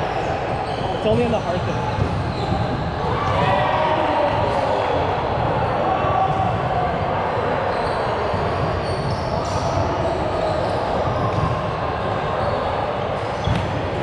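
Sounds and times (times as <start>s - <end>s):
shoes squeaking on gym floor: 0.6s - 3.0s.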